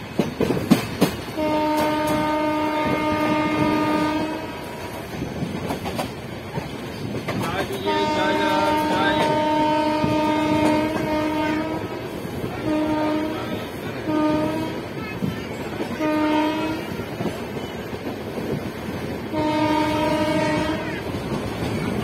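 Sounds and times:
train rumble and wheel clatter: 0.0 - 22.0
train air horn blasts: 1.4 - 4.9, 7.7 - 14.8, 16.0 - 17.0, 19.3 - 20.9.

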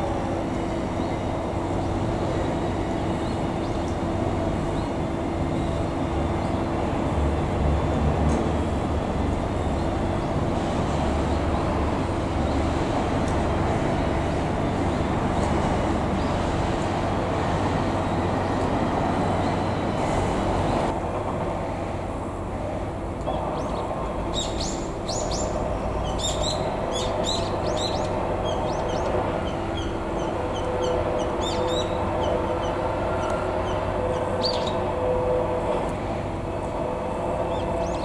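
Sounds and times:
diesel engine humming: 0.0 - 38.0
small birds chirping: 23.6 - 32.8.

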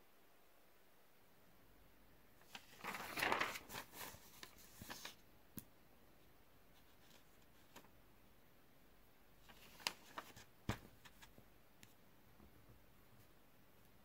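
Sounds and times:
paper sheets rustling: 2.4 - 5.2, 9.4 - 11.3.

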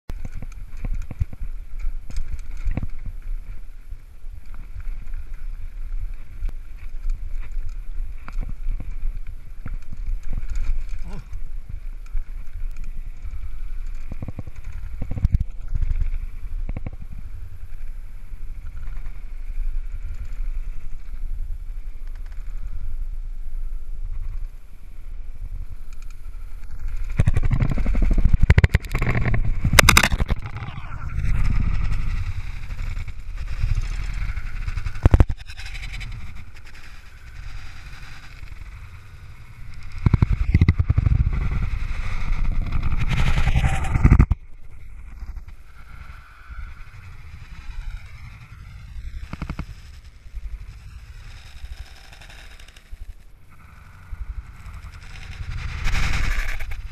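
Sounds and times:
mountain bike rattling: 0.1 - 22.7, 24.7 - 56.9
wind on microphone: 0.1 - 56.9
tyres on rough dirt: 25.8 - 56.9.

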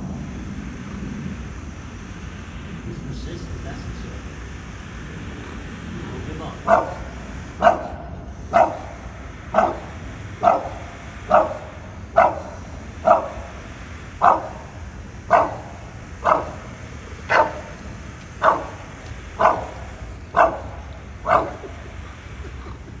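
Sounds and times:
dog barking: 6.6 - 13.6, 14.2 - 22.1.

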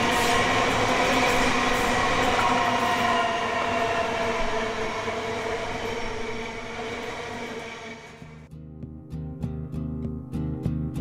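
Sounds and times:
electric train whine: 0.0 - 8.5
rail and wheel noise: 0.0 - 8.5.

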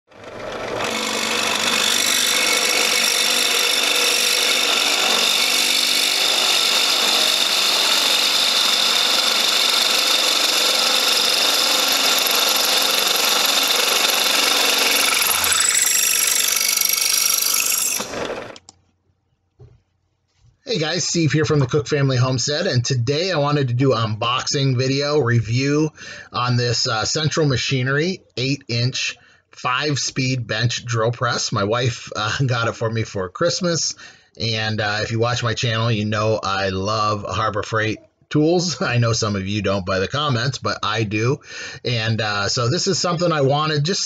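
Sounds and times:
drill press motor running: 0.1 - 18.7
drill bit screeching through metal: 0.2 - 18.7.

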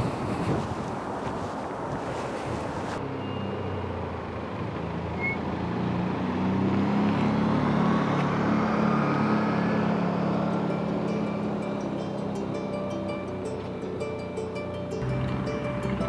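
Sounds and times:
wind on microphone: 0.0 - 3.0
vehicle engine running: 7.2 - 16.0.

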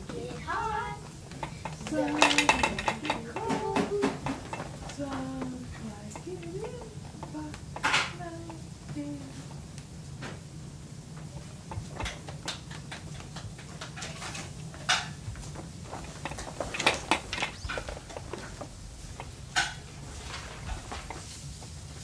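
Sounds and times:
steady low hum: 0.0 - 22.0
plastic toys clicking and knocking: 0.6 - 8.6, 11.7 - 15.2, 15.9 - 21.2.

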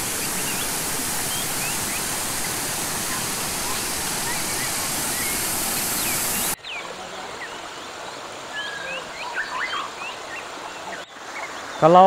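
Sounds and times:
birds chirping and whistling: 0.0 - 6.8
stream rushing over rocks: 0.0 - 9.6.

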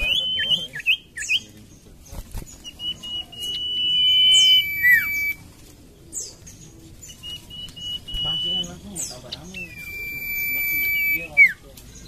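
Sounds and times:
bird whistling: 0.0 - 1.5, 2.6 - 5.4, 7.0 - 11.7.

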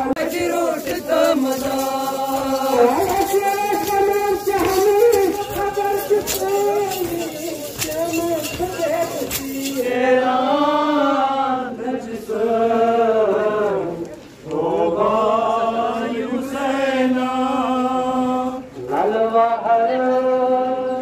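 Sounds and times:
man chanting a lament: 0.0 - 11.6.

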